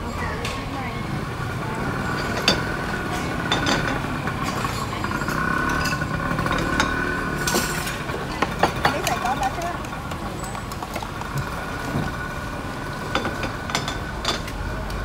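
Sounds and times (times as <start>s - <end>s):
metal utensils clinking on pans: 2.0s - 9.8s, 13.1s - 14.6s.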